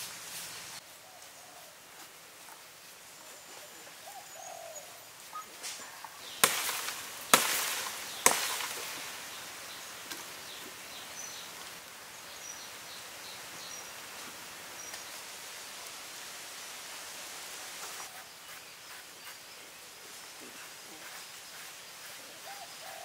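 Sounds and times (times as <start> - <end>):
birds chirping faintly: 0.3 - 23.0
knife chopping into tree bark: 6.4 - 9.0.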